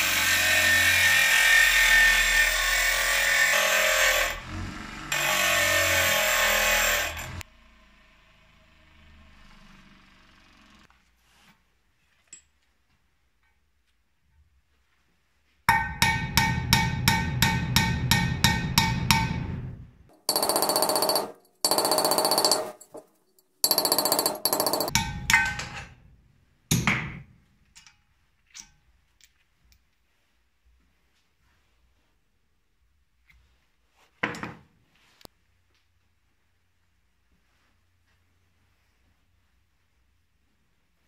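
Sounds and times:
hammer striking metal: 0:15.7 - 0:26.0.

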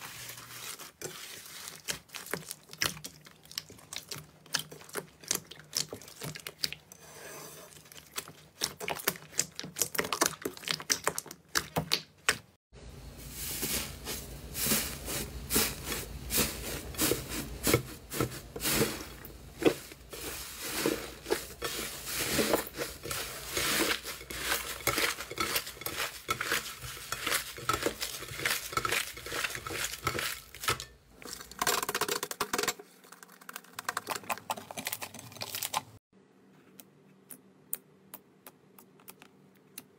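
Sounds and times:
hands squelching thick slime: 0:00.0 - 0:06.9, 0:07.7 - 0:12.6, 0:14.6 - 0:31.4.

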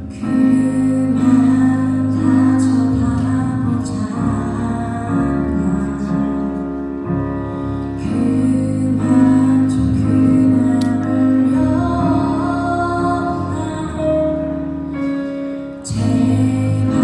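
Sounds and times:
keyboard: 0:00.0 - 0:17.0
person singing: 0:07.9 - 0:15.1, 0:15.8 - 0:17.0.

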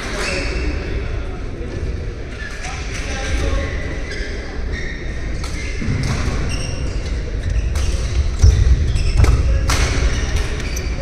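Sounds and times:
shoe squeaks on court floor: 0:02.4 - 0:11.0.

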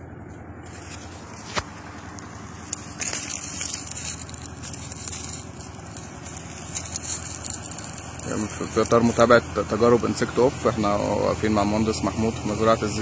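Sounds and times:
steady low rumble: 0:00.0 - 0:13.0
crackling and rustling: 0:00.3 - 0:09.5.

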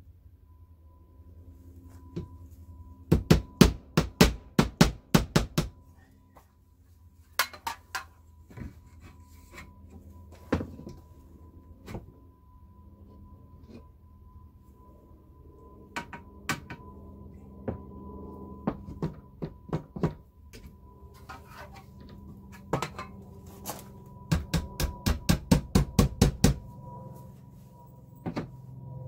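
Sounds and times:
hammer striking nail: 0:03.1 - 0:05.8, 0:24.3 - 0:26.6.

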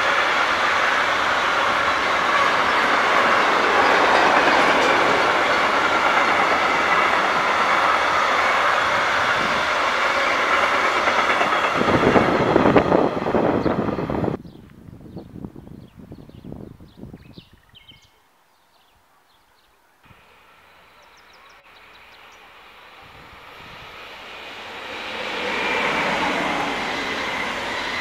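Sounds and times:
freight train wheels rumbling on rails: 0:00.0 - 0:14.5, 0:20.2 - 0:28.0.

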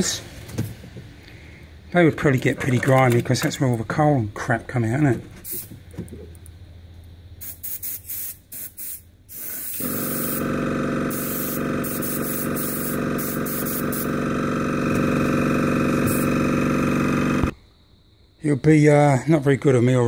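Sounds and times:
steady droning hum: 0:00.0 - 0:20.0
airbrush spraying air: 0:05.4 - 0:05.7, 0:07.4 - 0:17.5.

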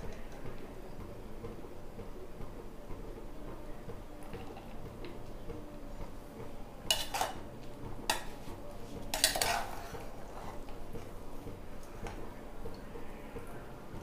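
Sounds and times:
metal spoon scraping dishware: 0:06.9 - 0:07.4, 0:09.1 - 0:10.7.

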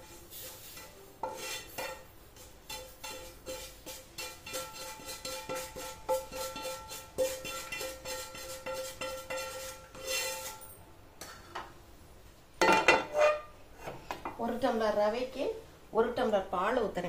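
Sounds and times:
metal spoon scraping metal pan: 0:00.0 - 0:10.8, 0:12.6 - 0:13.6.

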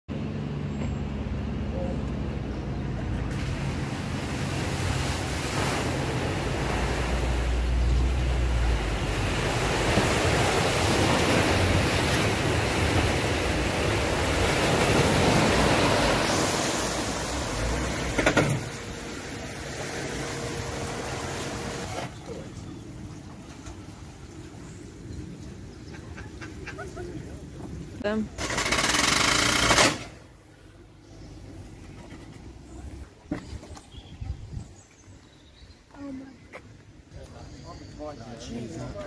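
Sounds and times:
bow wave rushing and splashing: 0:03.1 - 0:22.5.

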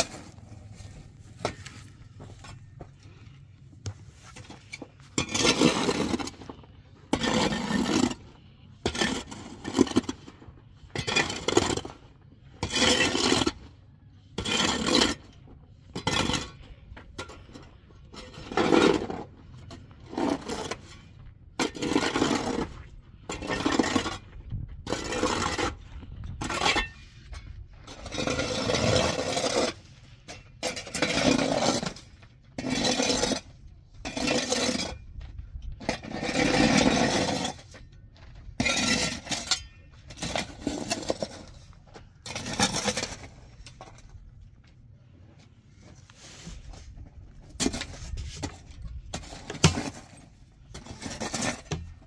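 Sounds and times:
scraping strokes: 0:45.7 - 0:52.0.

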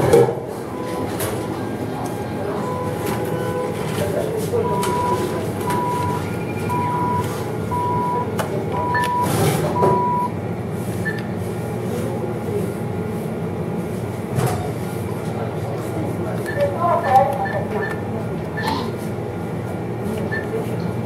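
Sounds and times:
steady background hum: 0:00.0 - 0:21.0
machine beeping tone: 0:00.6 - 0:10.3.

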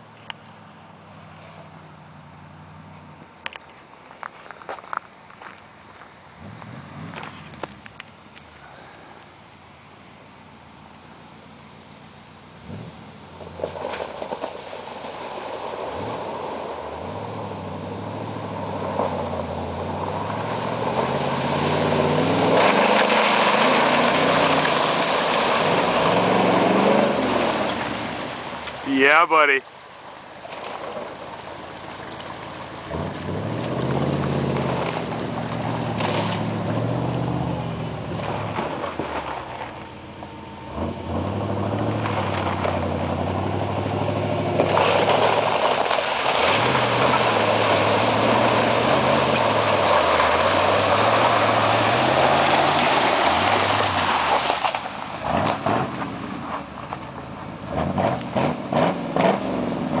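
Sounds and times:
truck engine revving: 0:15.6 - 0:29.0, 0:32.8 - 0:56.8, 0:57.5 - 1:00.0.

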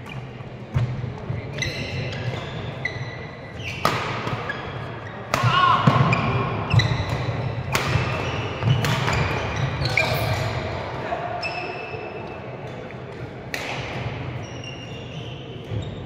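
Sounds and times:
shoes squeaking on floor: 0:01.4 - 0:05.2, 0:06.1 - 0:10.6, 0:14.4 - 0:16.0
racket striking shuttlecock: 0:03.8 - 0:04.5, 0:06.8 - 0:09.3.

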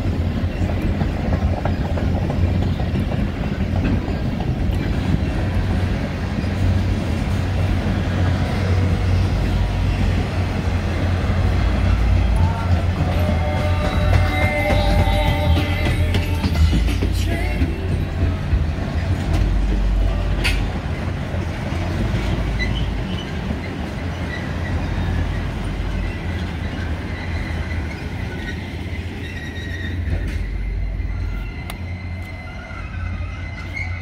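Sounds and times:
train wheels rumbling on rail: 0:00.0 - 0:34.0
high wheel squeal: 0:22.2 - 0:34.0.

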